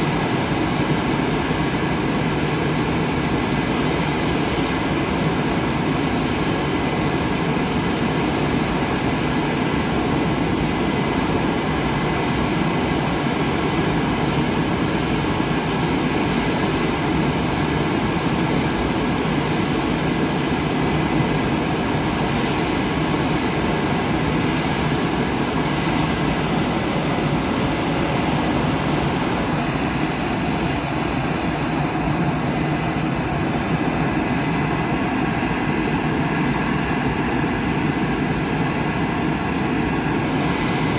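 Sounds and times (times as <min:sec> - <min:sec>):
aircraft turbine engines running: 0:00.0 - 0:40.9
steady whining tones: 0:13.3 - 0:40.9.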